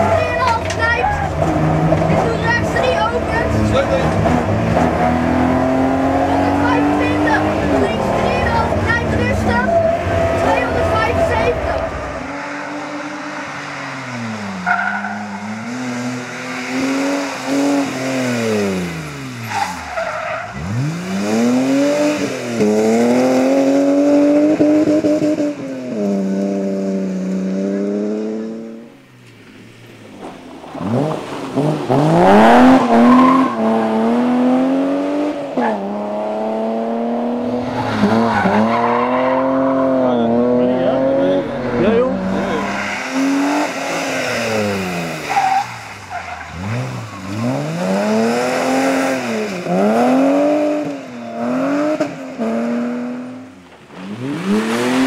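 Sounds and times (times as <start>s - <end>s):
rally car engines revving past: 0.0s - 55.0s.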